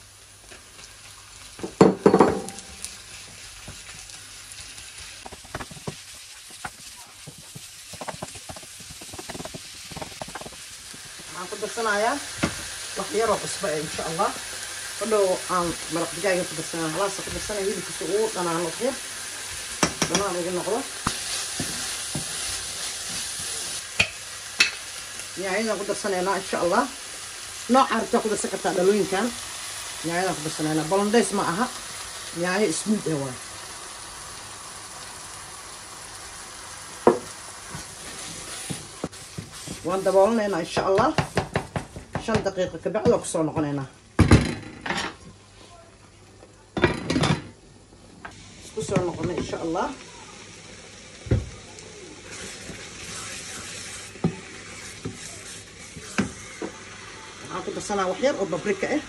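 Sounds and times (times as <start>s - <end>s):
meat sizzling in a frying pan: 0.0s - 43.9s, 47.8s - 59.0s
bowl knocking on pan: 1.6s - 2.7s, 37.1s - 37.3s.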